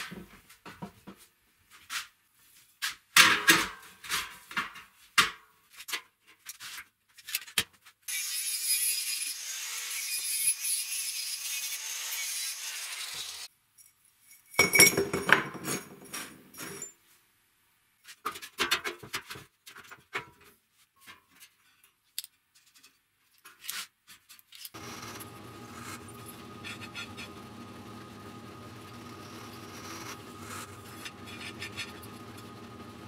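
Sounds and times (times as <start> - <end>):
angle grinder cutting steel: 8.1 - 13.5, 24.8 - 33.0
drill press humming: 24.8 - 33.0.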